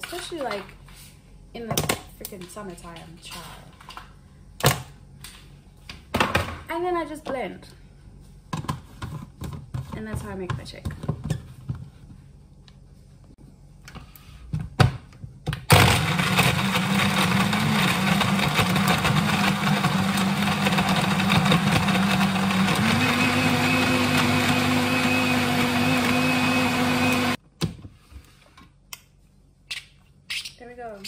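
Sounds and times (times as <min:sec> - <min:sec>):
blender motor blending ice: 0:15.7 - 0:27.4.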